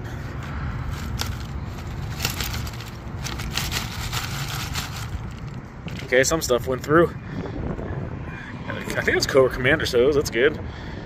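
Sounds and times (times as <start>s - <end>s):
small plastic parts rattling in basket: 0.9s - 6.3s.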